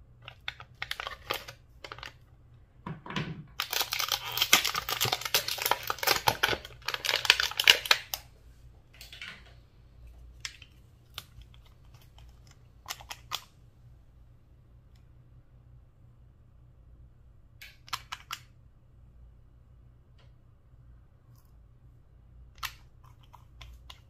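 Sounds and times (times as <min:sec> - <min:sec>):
plastic packaging crinkling: 0:00.3 - 0:02.2, 0:03.6 - 0:08.3.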